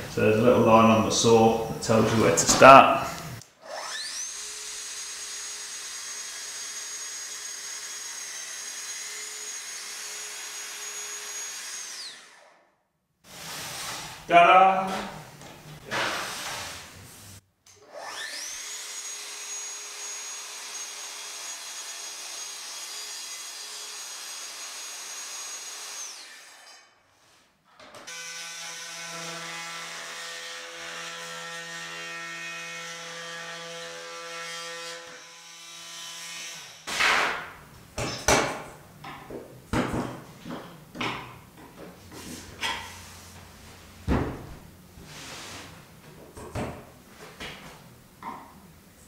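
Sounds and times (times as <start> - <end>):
lower-pitched buzzing power tool: 3.6 - 12.6, 17.7 - 26.8.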